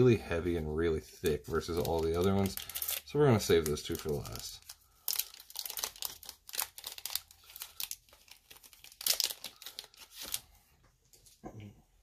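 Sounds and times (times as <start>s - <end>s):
foil wrapper tearing and crinkling: 1.7s - 10.4s.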